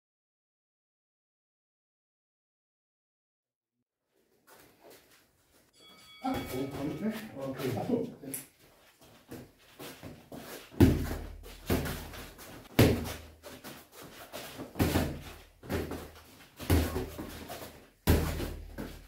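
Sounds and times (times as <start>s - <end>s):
boxing gloves punching thuds: 10.7s - 13.3s, 14.6s - 17.4s, 18.0s - 19.0s.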